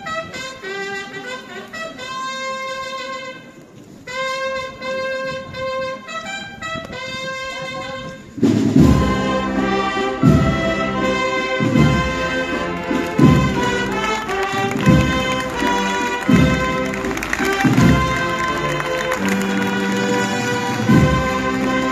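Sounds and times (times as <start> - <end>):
brass band playing a march: 0.0 - 21.9
bass drum: 11.6 - 19.8, 20.6 - 21.9.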